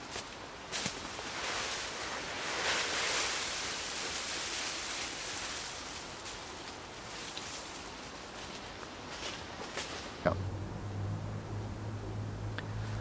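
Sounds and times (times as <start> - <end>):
dead leaves pouring rustle: 0.7 - 9.4.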